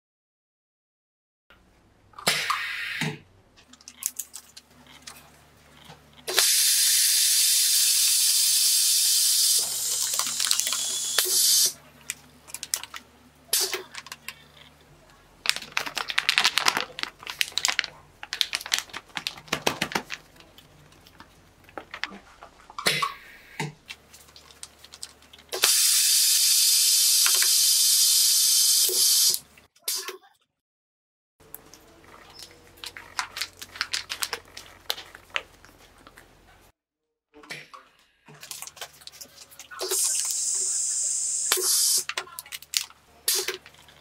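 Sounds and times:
plastic bags crinkling: 3.6 - 6.3, 9.6 - 11.0, 12.0 - 13.1, 13.8 - 22.7, 23.9 - 25.5, 31.6 - 36.3, 38.3 - 40.4, 42.1 - 44.0
vacuum sealer air hiss: 6.3 - 11.8, 25.6 - 29.4, 39.9 - 42.1.

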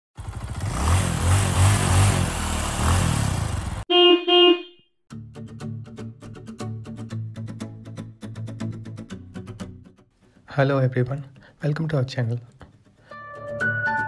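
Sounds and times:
car engine and road noise: 0.2 - 3.9
car horn beeps: 3.9 - 4.9
plucked-string music with bass: 5.1 - 10.0, 12.6 - 14.0.

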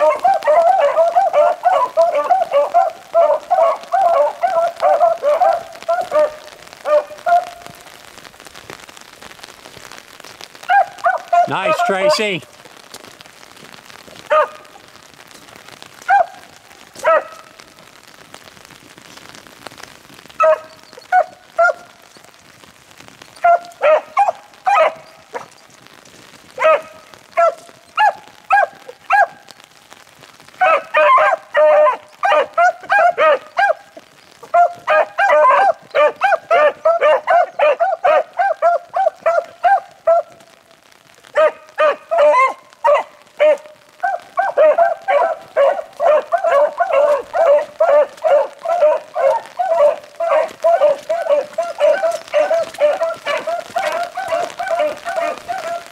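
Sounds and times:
beagles baying: 0.0 - 7.7, 10.7 - 12.4, 30.6 - 40.4, 41.4 - 55.9.

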